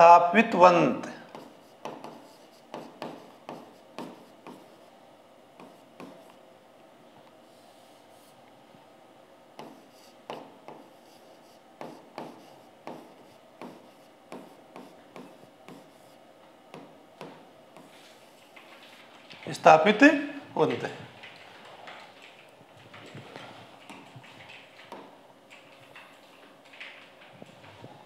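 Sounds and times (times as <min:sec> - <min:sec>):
stylus tapping and scraping on screen: 0:01.3 - 0:04.9, 0:05.6 - 0:06.4, 0:09.6 - 0:19.6, 0:20.6 - 0:28.0.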